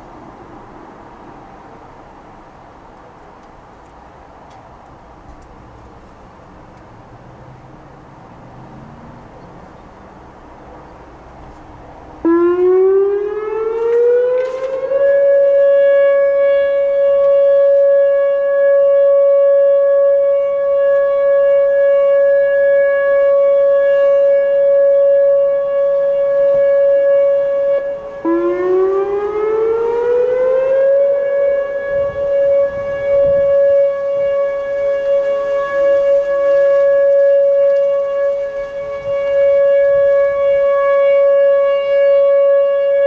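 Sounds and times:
warning siren rising tone: 12.0s - 43.0s.

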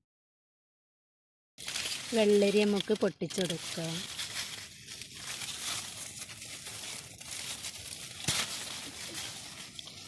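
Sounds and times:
leaves rustling and crinkling: 1.6s - 10.0s
cucumber stem snapping: 8.0s - 9.0s.

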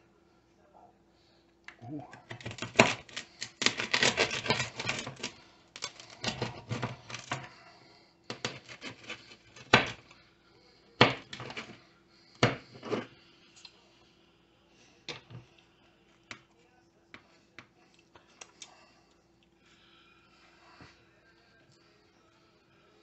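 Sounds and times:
pizza cutter rolling and clicking: 2.3s - 7.6s, 8.3s - 10.1s, 11.1s - 11.8s.

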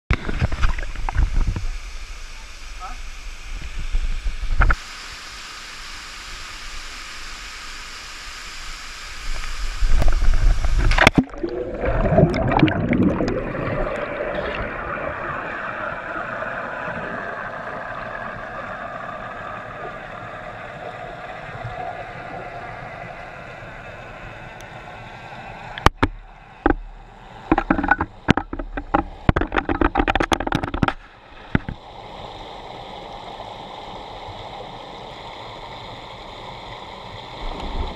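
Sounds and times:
muffled underwater wash: 0.1s - 37.9s
steady hiss: 0.2s - 11.2s, 15.7s - 37.9s
water bubbling and gurgling: 9.6s - 24.6s, 25.7s - 37.9s.

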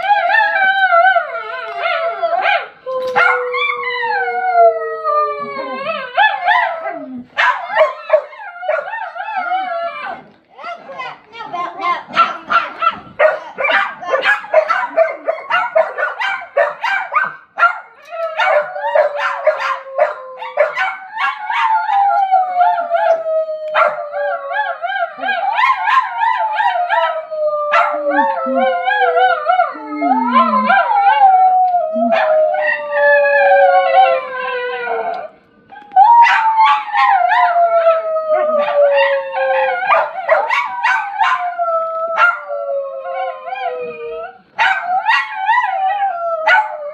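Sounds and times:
dog howling: 0.0s - 10.2s, 18.0s - 46.9s
dog barking and yipping: 7.4s - 8.9s, 12.1s - 21.7s, 44.6s - 45.3s.

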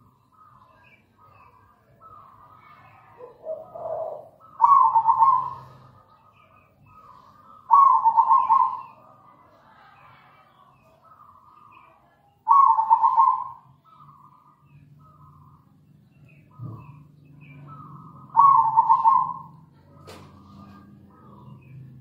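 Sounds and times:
dove cooing: 3.2s - 9.0s, 12.5s - 14.3s, 16.5s - 21.6s.

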